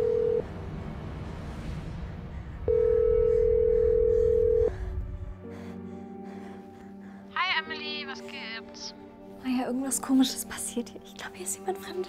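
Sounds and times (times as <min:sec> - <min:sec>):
low rumble: 0:00.0 - 0:05.5.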